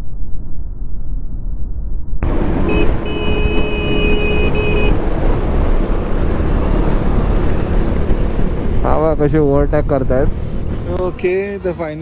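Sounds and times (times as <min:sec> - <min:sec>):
motorcycle wind and road noise: 0:02.2 - 0:12.0
vehicle horn: 0:02.5 - 0:05.0.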